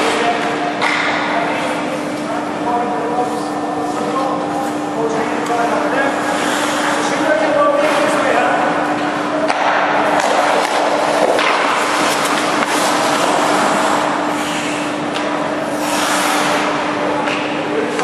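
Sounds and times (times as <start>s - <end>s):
steady hum: 0.0s - 18.0s
pucks and sticks knocking: 8.9s - 13.4s
skates scraping on ice: 10.2s - 14.0s, 15.8s - 16.7s.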